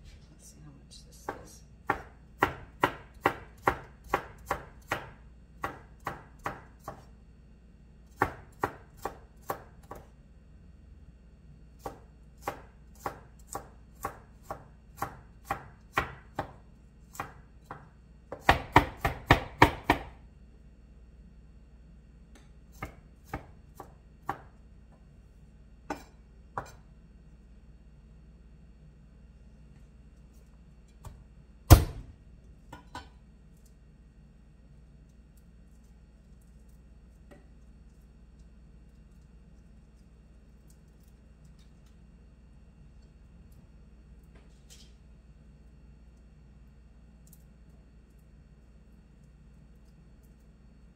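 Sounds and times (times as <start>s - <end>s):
knife chopping on wooden board: 1.3s - 7.1s, 8.1s - 10.1s, 11.8s - 20.2s, 22.4s - 24.5s, 25.9s - 26.8s, 31.0s - 33.1s.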